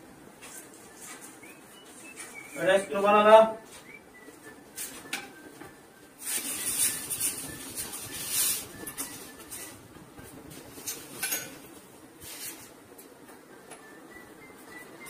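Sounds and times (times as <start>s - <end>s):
wrench and pipe fittings scraping: 6.2s - 9.7s.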